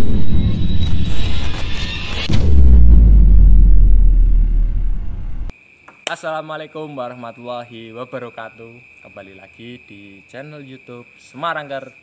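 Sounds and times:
deep cinematic bass boom: 0:00.0 - 0:05.5.

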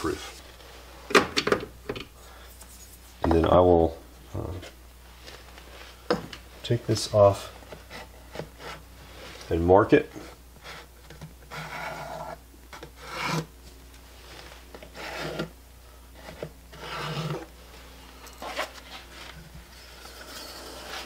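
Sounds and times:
pencil scratching on wood: 0:11.5 - 0:13.5, 0:14.9 - 0:15.5, 0:16.2 - 0:17.5.

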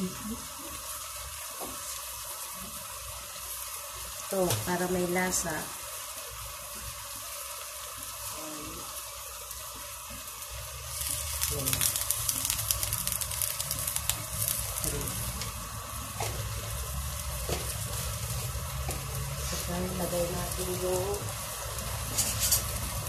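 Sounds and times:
food frying in oil in a wok: 0:00.0 - 0:23.0.

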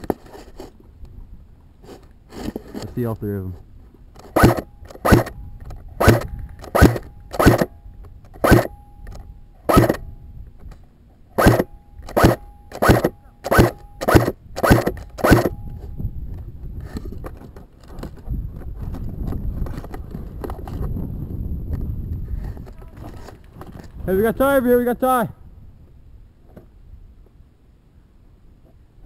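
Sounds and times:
faint steady whine: 0:00.0 - 0:29.0
airsoft gun shots: 0:04.4 - 0:05.4, 0:06.0 - 0:07.7, 0:08.4 - 0:08.8, 0:09.7 - 0:10.1, 0:11.4 - 0:15.6.

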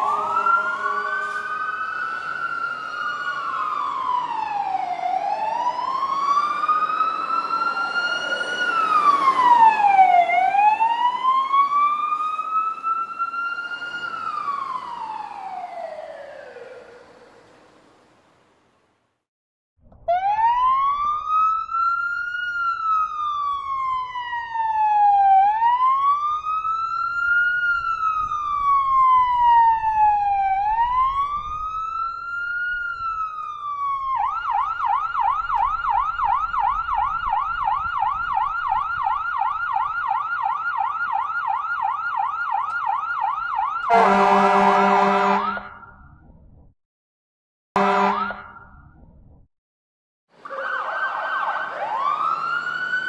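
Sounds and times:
horn-like blast: 0:00.0 - 0:02.0, 0:43.9 - 0:45.6, 0:47.8 - 0:48.4
emergency vehicle siren: 0:00.0 - 0:18.1, 0:19.9 - 0:46.4, 0:47.8 - 0:49.2, 0:50.3 - 0:53.0.

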